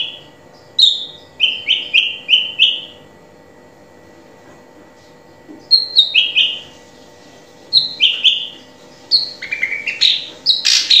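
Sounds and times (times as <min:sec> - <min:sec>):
bird singing whistled notes: 0:05.7 - 0:06.6, 0:07.7 - 0:11.0.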